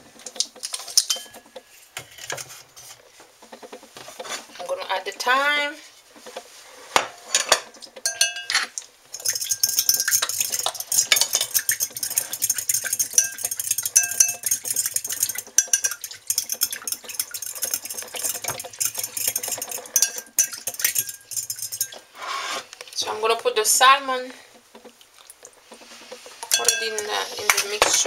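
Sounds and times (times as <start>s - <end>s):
utensil stirring liquid in bowl: 8.0s - 22.9s, 25.2s - 28.0s.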